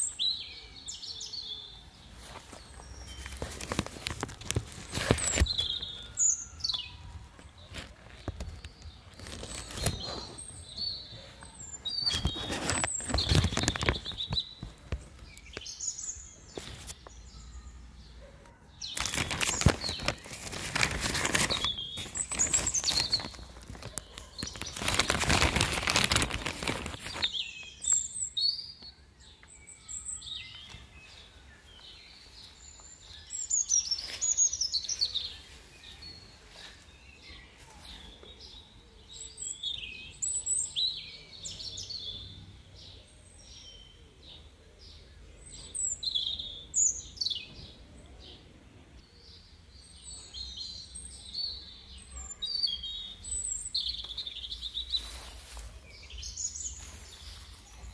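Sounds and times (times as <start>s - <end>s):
small birds chirping: 0.0s - 57.9s
rustling noise bursts: 2.1s - 5.9s, 12.0s - 15.2s, 18.8s - 27.4s.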